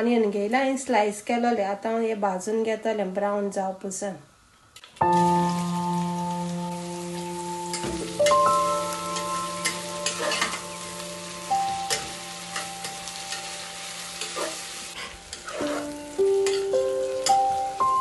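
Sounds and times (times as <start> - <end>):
soft background music: 5.0 - 18.0
onions sizzling in pan: 5.1 - 18.0
spatula scraping pan: 9.6 - 10.6, 14.1 - 16.6.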